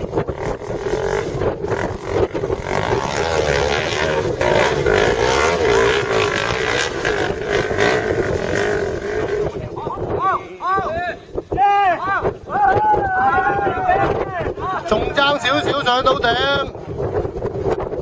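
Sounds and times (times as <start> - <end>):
dirt bike engine revving: 0.0 - 9.8.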